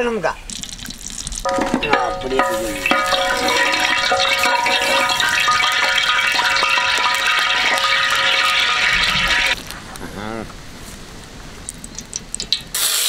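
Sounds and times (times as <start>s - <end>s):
oil sizzling and crackling: 0.0s - 13.0s
held ringing tones: 1.5s - 9.6s.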